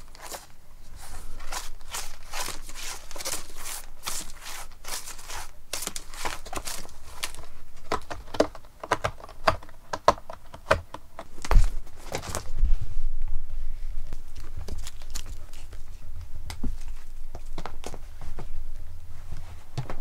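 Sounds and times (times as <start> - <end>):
cat claws scratching cardboard: 0.1 - 10.8.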